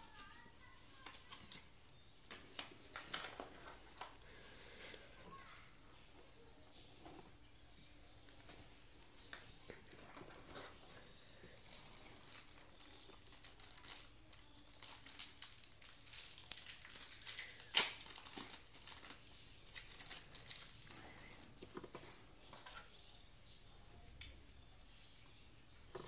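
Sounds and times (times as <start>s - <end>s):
plastic wrapping crinkling and tearing: 0.0s - 4.2s, 9.8s - 22.8s.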